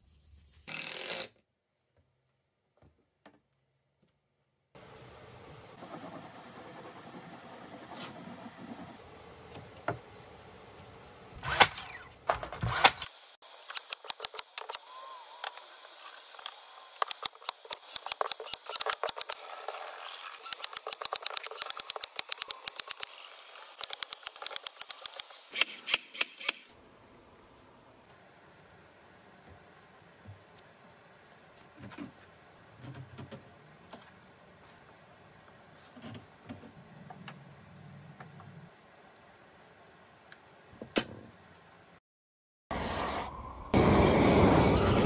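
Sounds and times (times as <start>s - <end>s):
rapid sharp clicks: 20.4s - 26.6s.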